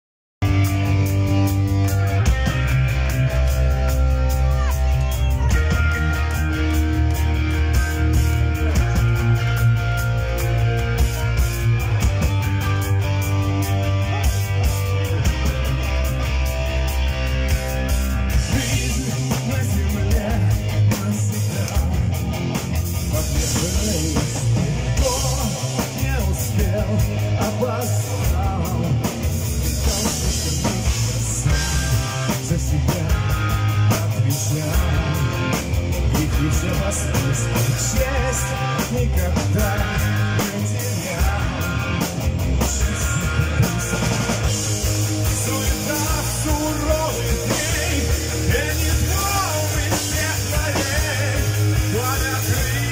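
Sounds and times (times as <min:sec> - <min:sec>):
bass guitar: 0:00.4 - 0:52.9
drum kit: 0:00.4 - 0:52.9
electric guitar: 0:00.4 - 0:52.9
man singing: 0:18.3 - 0:22.3, 0:23.0 - 0:52.9.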